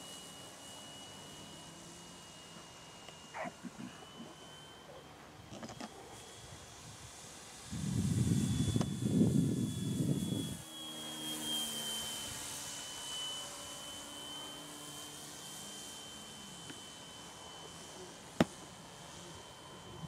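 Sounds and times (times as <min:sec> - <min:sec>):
model plane motor whining: 0:00.0 - 0:20.0.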